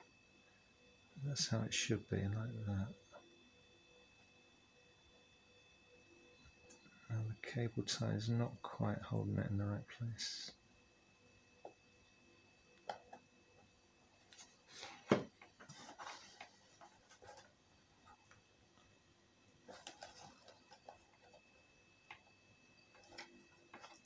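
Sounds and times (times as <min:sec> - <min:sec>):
plastic handling knocks: 0:15.0 - 0:15.6.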